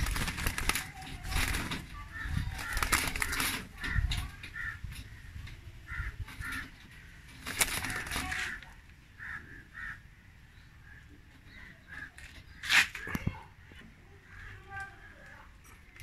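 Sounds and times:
wings rustling and flapping: 0.0s - 9.4s
pigeons calling: 0.0s - 16.0s.

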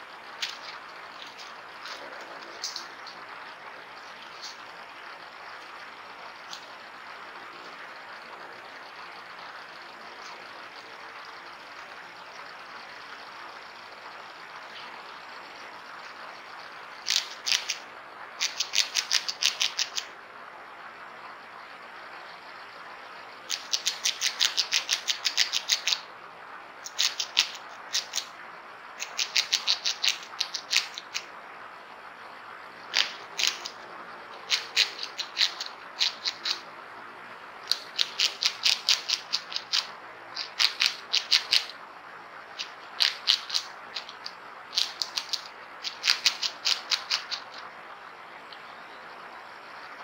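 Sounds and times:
rodent gnawing seeds: 0.2s - 4.8s, 17.0s - 20.1s, 23.4s - 26.1s, 26.9s - 28.3s, 29.0s - 31.3s, 32.9s - 36.7s, 37.6s - 41.8s, 42.5s - 47.7s.

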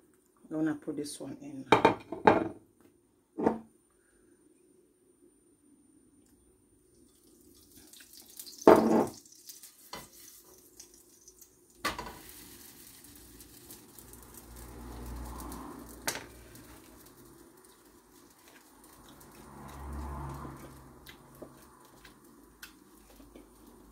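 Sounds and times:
flatbread sizzling: 6.9s - 23.9s
loud knock in frying pan: 11.8s - 12.2s.

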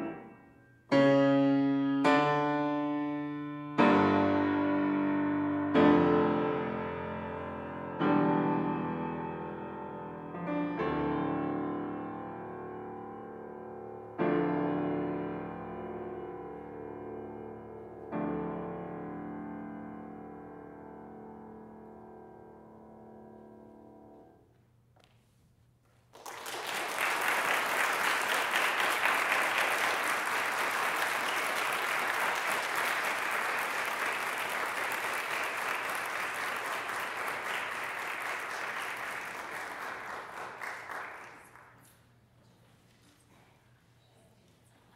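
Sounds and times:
audience applause: 26.1s - 41.9s.

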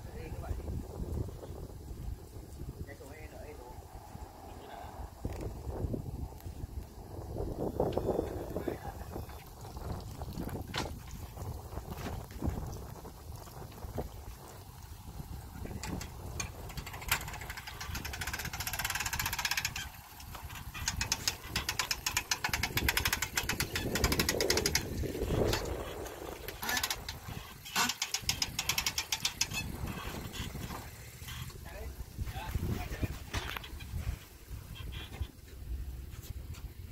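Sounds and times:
hand-crank winch ratcheting: 15.6s - 31.6s.

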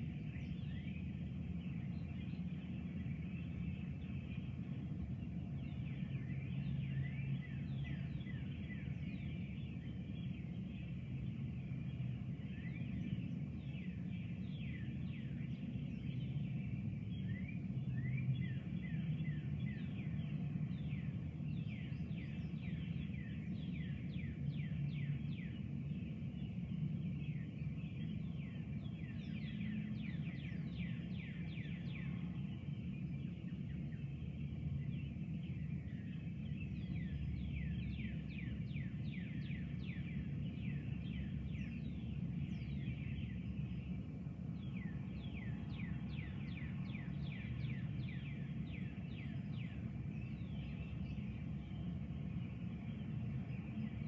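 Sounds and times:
steady low rumble: 0.0s - 54.0s.

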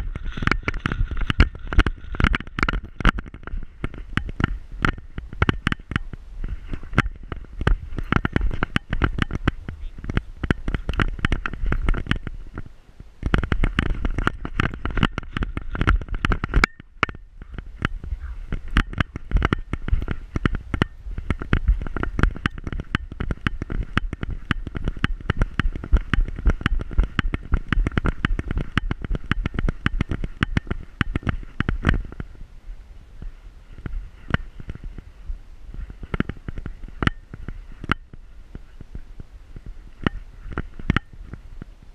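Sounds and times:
low rumble: 0.0s - 5.4s
camera knocking in harness: 0.0s - 32.4s, 33.2s - 35.1s, 35.7s - 39.0s, 39.6s - 41.7s.

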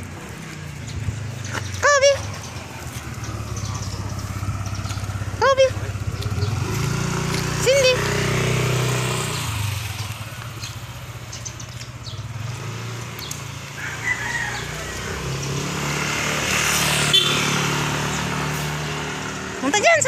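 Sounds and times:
motorcycle engine running: 0.0s - 20.0s
rooster crowing: 13.7s - 15.3s.

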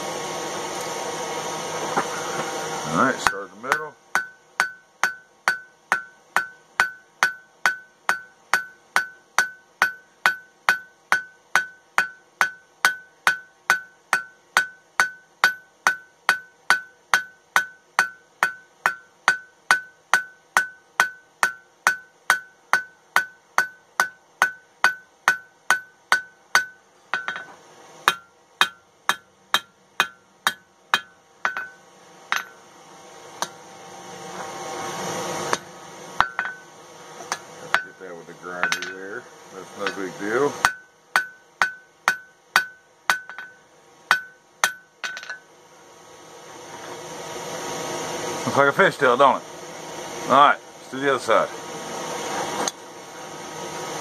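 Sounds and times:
hammer ringing on anvil: 3.1s - 27.5s, 28.1s - 32.6s, 36.2s - 36.7s, 37.3s - 39.0s, 39.8s - 45.5s.

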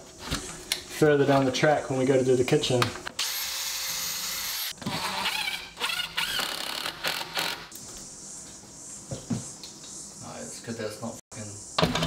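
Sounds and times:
power drill driving screw: 3.2s - 7.7s.

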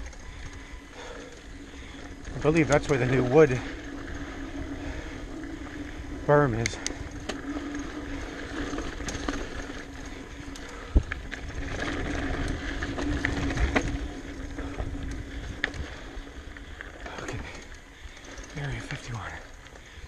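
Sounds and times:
bike rattling and clicking: 0.0s - 20.0s
bike tyres rumbling on dirt: 0.0s - 20.0s
wind noise on microphone: 10.8s - 16.1s.

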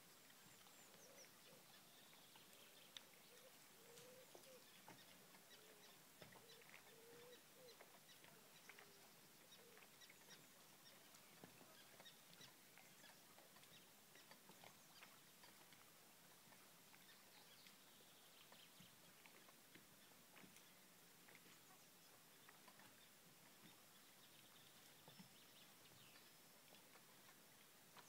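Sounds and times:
faint low bird calls: 0.2s - 15.7s
light ticks: 2.4s - 15.9s.

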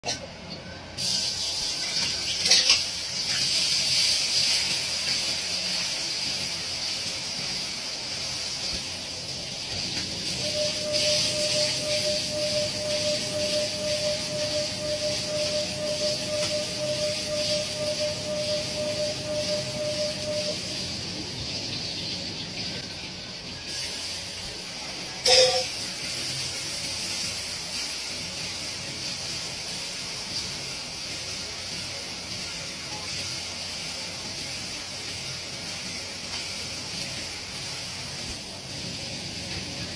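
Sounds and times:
food hissing in a wok: 1.0s - 39.9s
steady tone: 10.3s - 20.9s.

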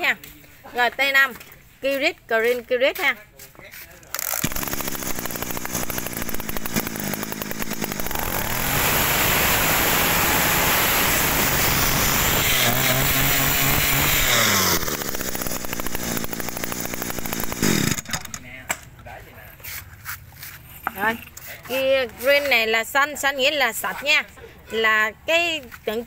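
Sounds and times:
brush cutter engine revving: 4.1s - 18.6s.

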